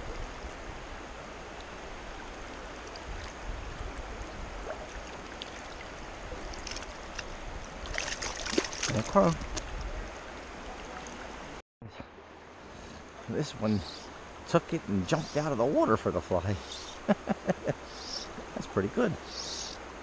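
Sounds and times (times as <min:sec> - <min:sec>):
stream water rushing: 0:00.0 - 0:20.0.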